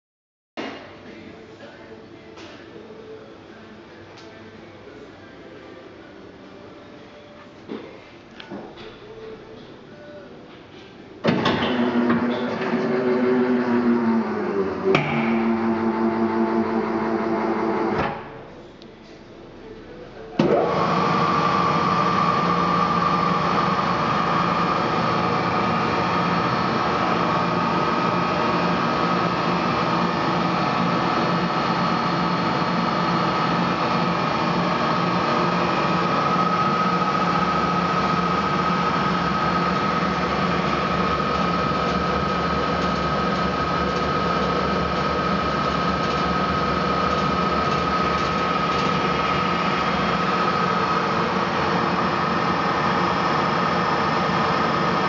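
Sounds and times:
mixer motor humming and whining: 0:11.3 - 0:18.5, 0:20.4 - 0:55.0.

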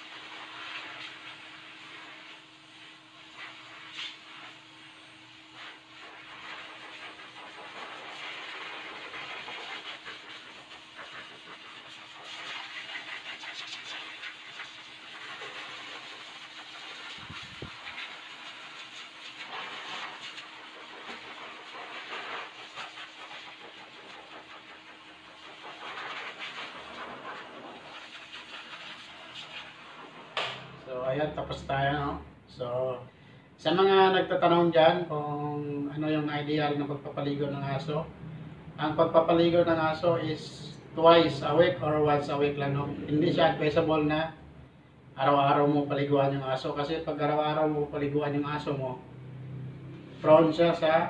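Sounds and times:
blow dryer running: 0:00.0 - 0:32.0.

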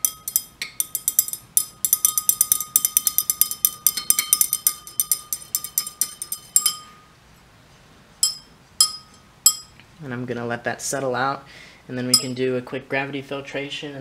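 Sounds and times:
stir rod clinking in glass beaker: 0:00.0 - 0:07.1, 0:08.2 - 0:09.8, 0:12.1 - 0:12.4.

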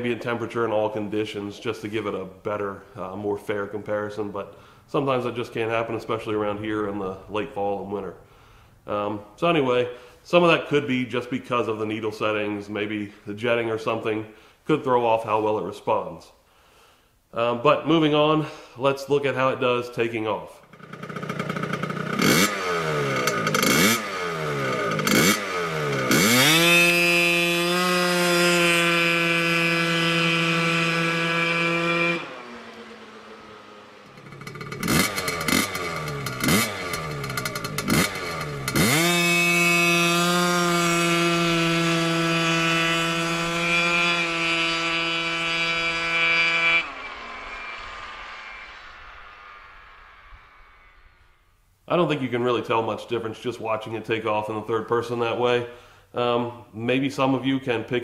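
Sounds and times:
scooter engine revving: 0:20.7 - 0:48.8.

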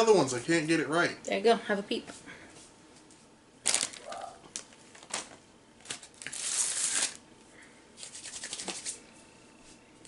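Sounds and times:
plastic wrapping crinkling: 0:03.6 - 0:07.2.

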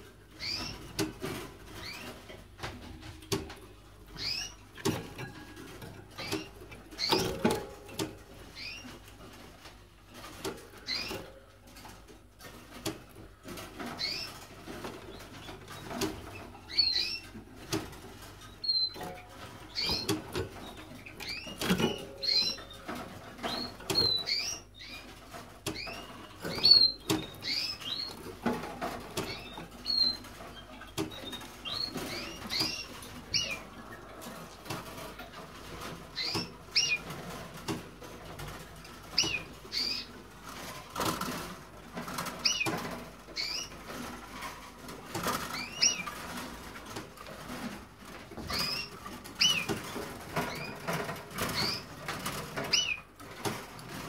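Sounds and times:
finches chirping: 0:00.4 - 0:00.9, 0:04.1 - 0:04.6, 0:08.5 - 0:08.9, 0:15.2 - 0:17.4, 0:19.7 - 0:25.1, 0:25.7 - 0:28.2, 0:36.1 - 0:37.1, 0:39.2 - 0:40.1, 0:43.4 - 0:43.7, 0:45.5 - 0:46.1, 0:48.4 - 0:49.7, 0:50.5 - 0:51.9
birds hopping on cage wire: 0:00.4 - 0:54.0.

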